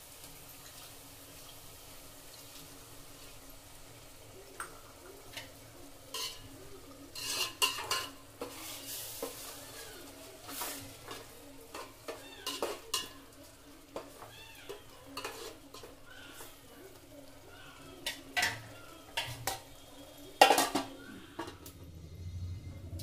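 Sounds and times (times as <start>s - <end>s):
onions frying in a pot: 0.0s - 23.0s
spatula scraping metal pot: 6.1s - 6.5s, 7.1s - 9.6s, 10.5s - 13.2s, 14.0s - 16.6s.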